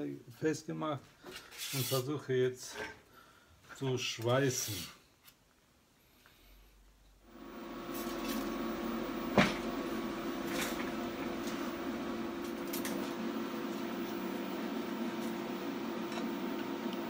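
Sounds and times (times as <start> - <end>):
welding arc hum and hiss: 7.3 - 17.0.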